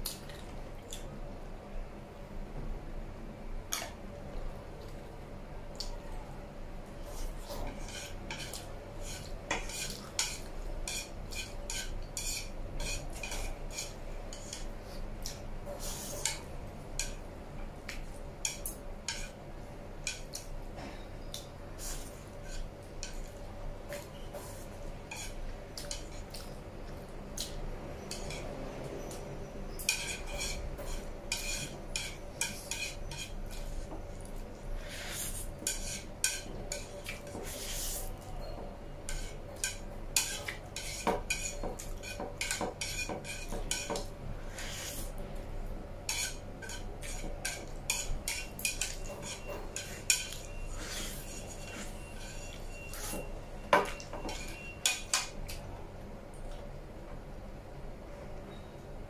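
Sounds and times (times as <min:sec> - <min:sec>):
chopsticks scraping ceramic plate: 0:07.4 - 0:14.7, 0:21.9 - 0:23.3, 0:23.9 - 0:26.4, 0:29.7 - 0:34.0, 0:34.8 - 0:38.5, 0:39.1 - 0:45.1, 0:46.1 - 0:55.3.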